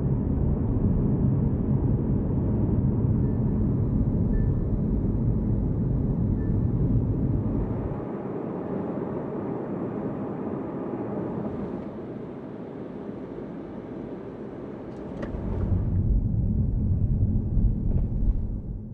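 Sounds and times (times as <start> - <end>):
road and engine noise in car: 3.2 - 8.1, 11.3 - 18.9.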